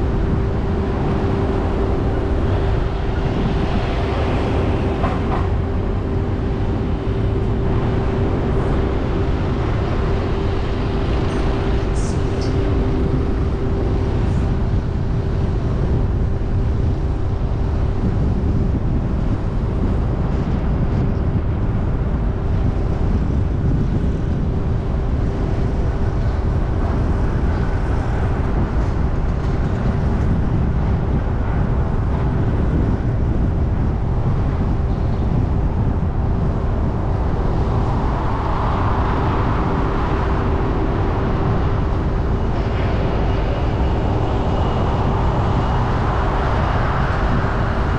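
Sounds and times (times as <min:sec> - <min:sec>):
car road and engine rumble: 0:00.0 - 0:47.9
constant hum: 0:00.0 - 0:47.9.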